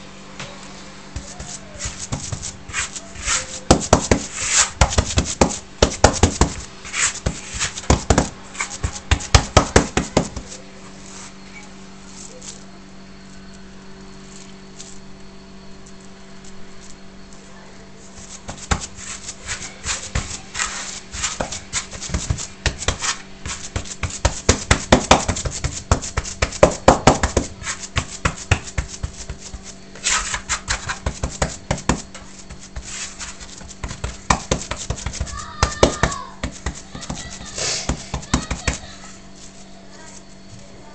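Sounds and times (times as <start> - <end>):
hands slapping dough in wooden bowl: 1.2 - 10.6, 18.2 - 38.9.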